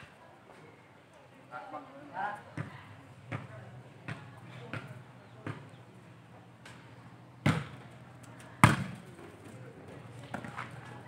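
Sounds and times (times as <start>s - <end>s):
volleyball being struck: 7.4s - 7.8s.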